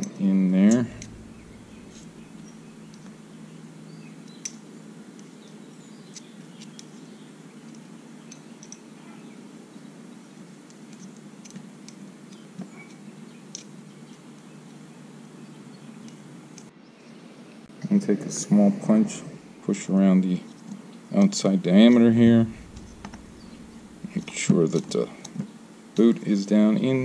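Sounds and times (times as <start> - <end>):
steady low hum: 0.1 - 5.8, 17.6 - 20.4, 21.6 - 25.4.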